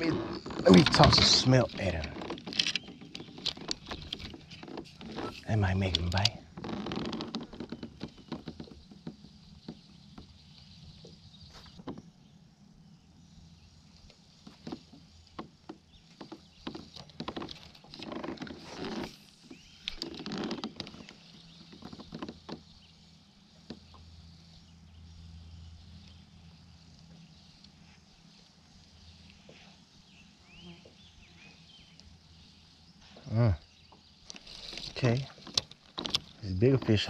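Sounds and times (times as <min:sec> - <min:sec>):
low steady hum: 0:21.0 - 0:37.0.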